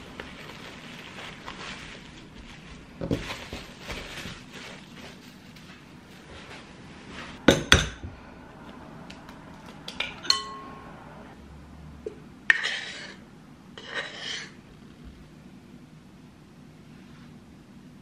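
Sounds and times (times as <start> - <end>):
dishware knocking and clinking: 7.5 - 8.0, 9.9 - 10.8.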